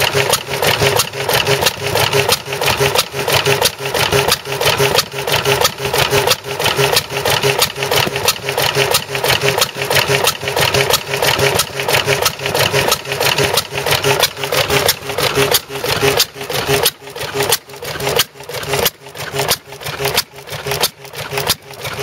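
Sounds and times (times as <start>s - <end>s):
rhythmic mechanical clatter: 0.0s - 22.0s
stationary engine running: 0.0s - 22.0s.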